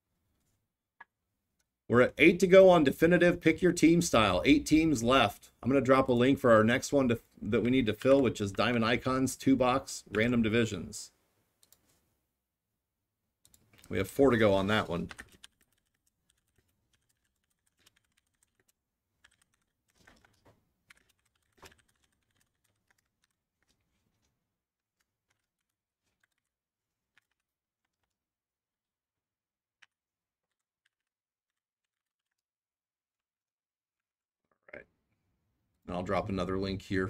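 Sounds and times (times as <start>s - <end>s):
typing on computer keyboard: 14.6s - 24.2s, 25.0s - 28.2s, 29.8s - 32.4s.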